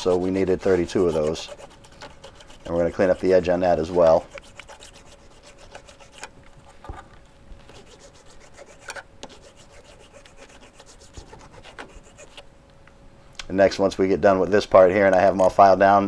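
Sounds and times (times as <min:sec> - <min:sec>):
hand file rasping on metal: 0:00.0 - 0:06.3, 0:07.7 - 0:12.4.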